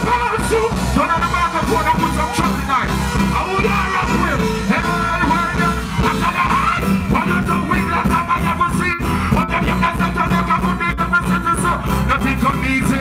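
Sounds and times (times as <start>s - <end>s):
live reggae band: 0.0s - 13.0s
person singing into microphone: 0.0s - 13.0s.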